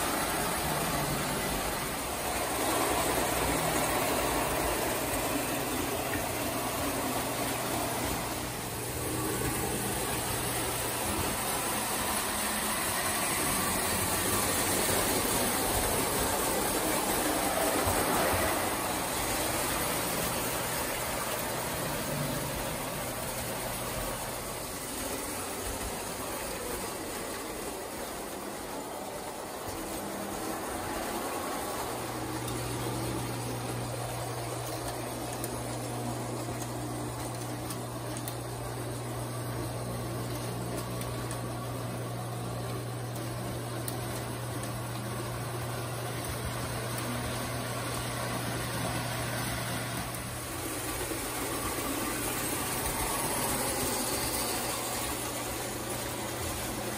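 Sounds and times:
toy train rumbling on track: 0.0 - 56.9.

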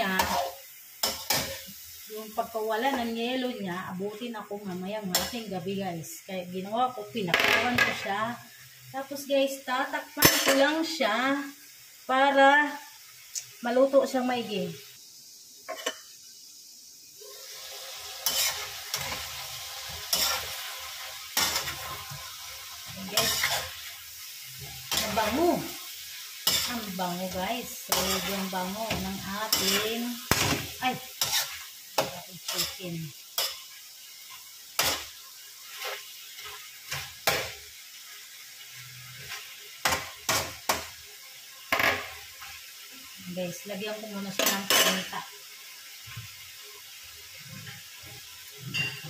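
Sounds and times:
chicken sizzling in a wok: 0.0 - 49.0
metal spatula scraping a wok: 17.6 - 25.8, 26.4 - 37.6, 47.5 - 49.0.

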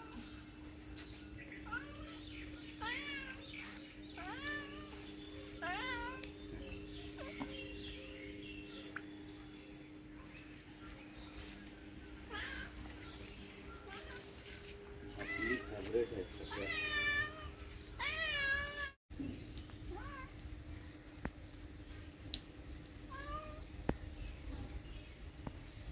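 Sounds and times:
steady low hum: 0.0 - 25.9
cat meowing: 4.2 - 6.2.

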